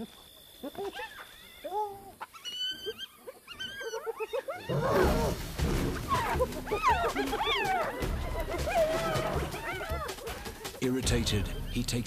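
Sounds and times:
hyenas squealing and whining: 0.6s - 5.4s, 6.0s - 10.8s
lion growling: 4.5s - 10.8s.

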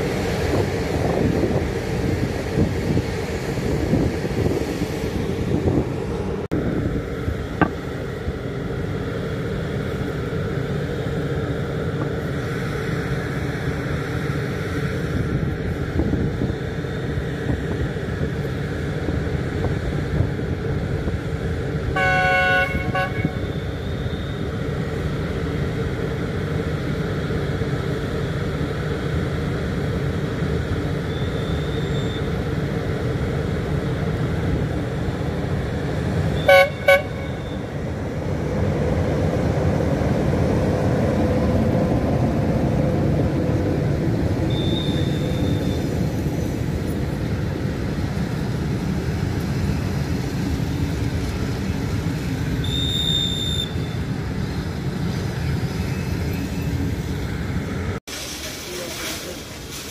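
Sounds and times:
diesel locomotive engine: 0.0s - 59.9s
train horn toots: 22.0s - 23.5s, 36.4s - 37.7s.

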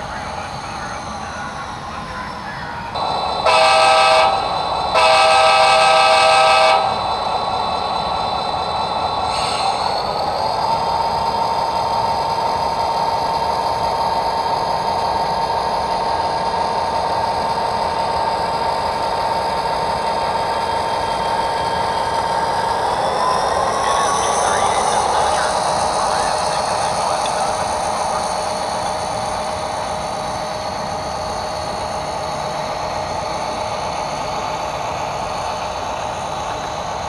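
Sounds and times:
diesel engine running with whine: 0.0s - 37.0s
multi-chime train horn: 3.4s - 6.9s.

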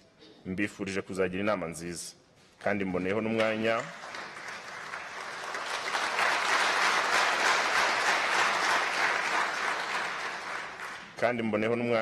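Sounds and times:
audience applauding: 3.8s - 11.2s.

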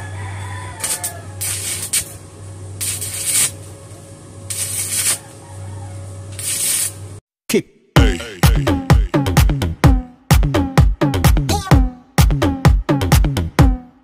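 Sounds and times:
low welder hum: 0.0s - 7.2s
arc welding crackling hiss: 0.8s - 2.2s, 2.8s - 3.8s, 4.5s - 5.4s, 6.3s - 7.2s.

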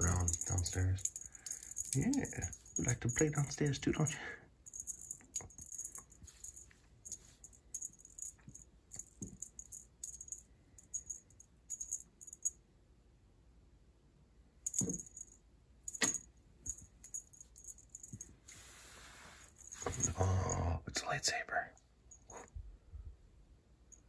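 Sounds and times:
cat wand toy jangling: 0.0s - 12.5s, 14.7s - 15.3s, 15.9s - 18.7s, 19.4s - 20.6s.

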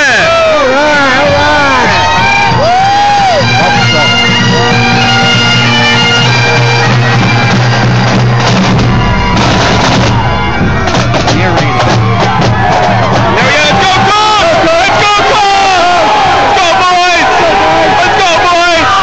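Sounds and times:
bagpipes playing: 0.9s - 15.8s
snare drums rattling: 6.5s - 15.6s.

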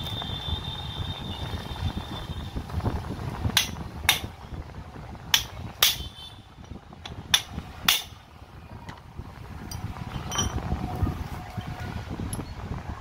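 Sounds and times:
hammer striking steel punch: 3.6s - 4.3s, 5.3s - 6.1s, 7.1s - 8.2s.

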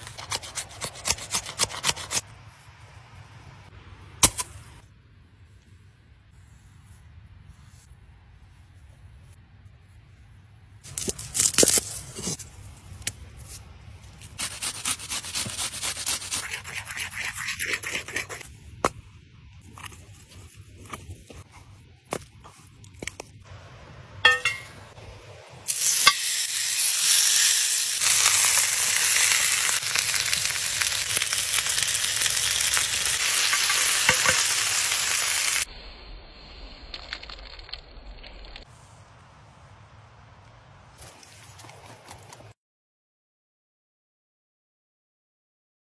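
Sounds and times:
steak sizzling on grill pan: 25.7s - 35.7s.

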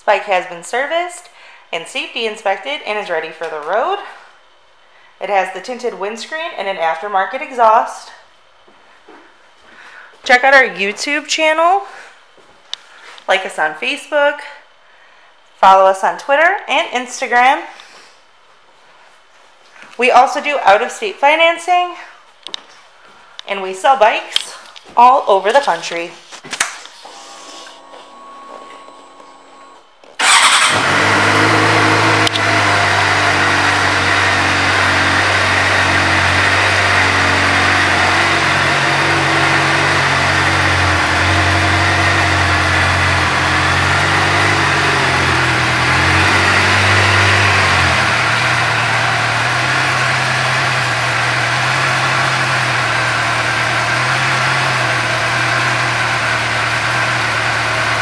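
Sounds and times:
motorcycle engine starting and idling: 27.0s - 58.0s.

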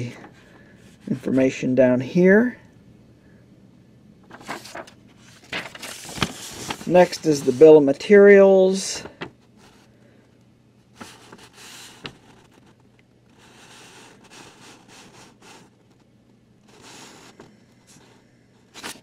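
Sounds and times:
faint low hum: 0.0s - 19.0s
paper rustling and sliding: 4.2s - 8.2s, 8.9s - 9.9s, 10.9s - 16.1s, 16.7s - 19.0s.

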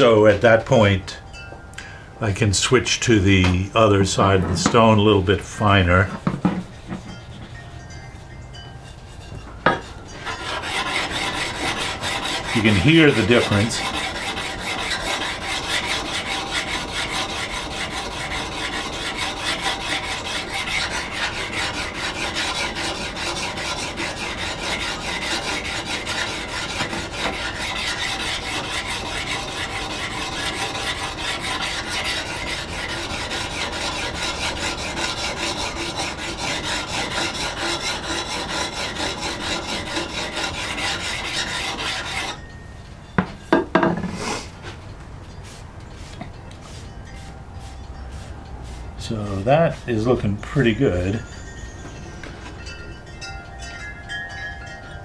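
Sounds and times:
sharpening plate rasping on steel: 8.5s - 42.5s.

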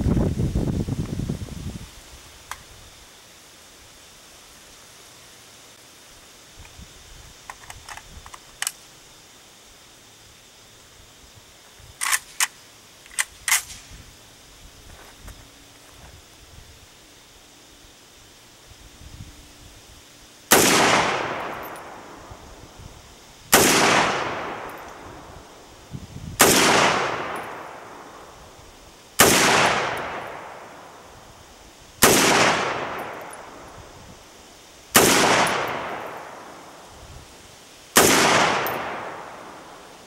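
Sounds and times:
rifle shots with echo: 20.5s - 22.2s, 23.5s - 25.0s, 26.4s - 28.0s, 29.2s - 30.7s, 32.0s - 33.6s, 35.0s - 36.6s, 38.0s - 39.8s.

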